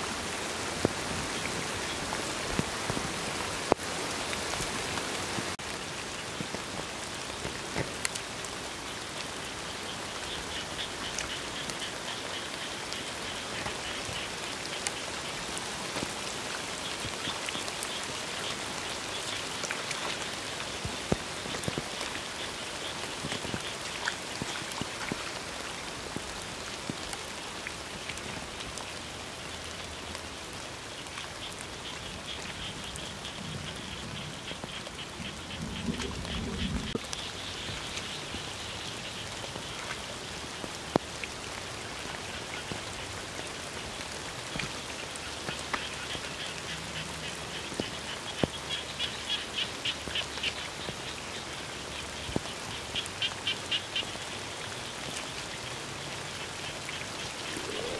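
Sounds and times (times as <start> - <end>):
rain falling on water: 0.0 - 57.9
frogs trilling: 8.9 - 15.6, 29.4 - 40.4, 41.8 - 57.9.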